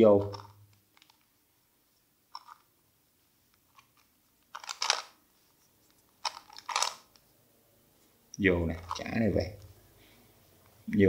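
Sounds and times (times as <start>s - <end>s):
plastic puzzle clicking: 0.2s - 1.2s, 2.3s - 2.6s, 3.6s - 5.2s, 6.2s - 7.2s.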